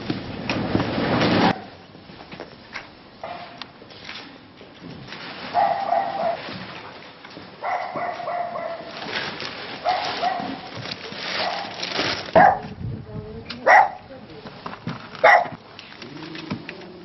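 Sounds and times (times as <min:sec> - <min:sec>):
dog barking: 0:03.2 - 0:03.6, 0:05.6 - 0:06.4, 0:07.6 - 0:08.9, 0:09.8 - 0:10.7, 0:11.4 - 0:11.8, 0:12.4 - 0:12.7, 0:13.6 - 0:14.0, 0:15.2 - 0:15.6.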